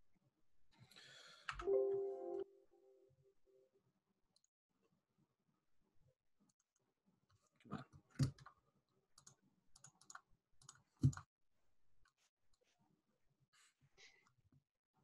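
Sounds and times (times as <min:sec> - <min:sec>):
computer mouse clicks: 0:09.2 - 0:11.3.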